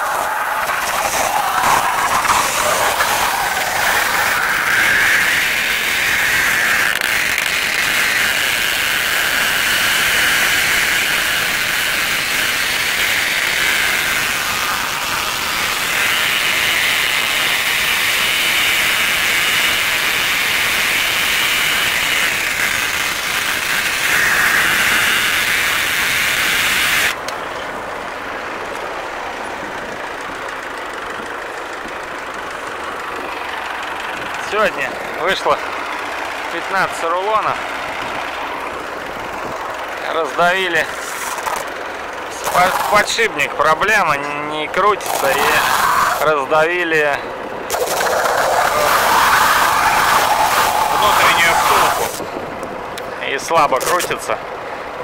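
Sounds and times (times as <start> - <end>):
tractor engine: 0.0 - 55.0
bale wrapper film hissing: 47.7 - 52.2.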